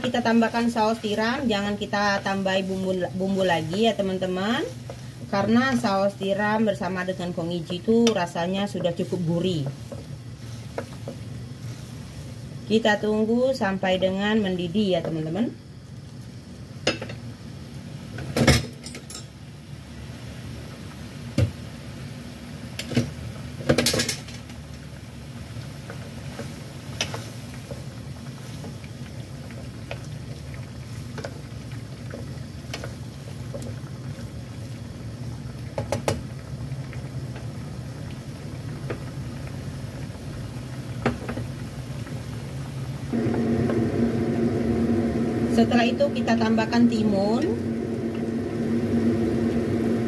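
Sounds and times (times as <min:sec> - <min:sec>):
broth bubbling in a wok: 0:00.0 - 0:50.0
low rumble: 0:43.1 - 0:50.0.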